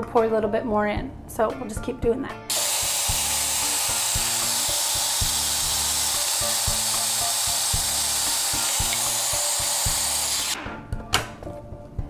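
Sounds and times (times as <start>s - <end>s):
background music: 0.0s - 12.0s
food processor motor running: 2.5s - 10.6s.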